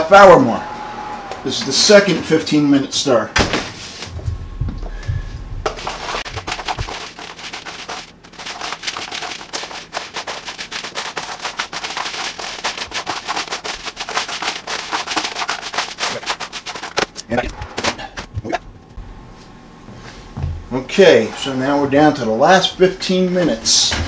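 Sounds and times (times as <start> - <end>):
popcorn crackling in foil pan: 5.8 - 17.3.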